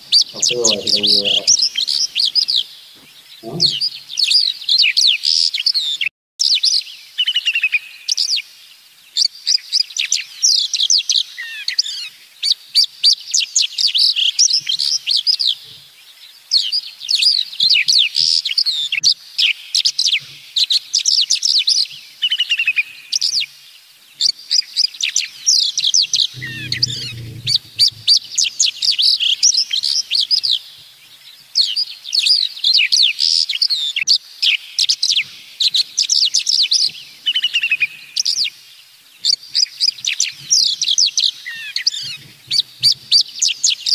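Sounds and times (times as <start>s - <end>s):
songbirds singing: 0.0s - 43.9s
short low sound: 26.4s - 28.4s.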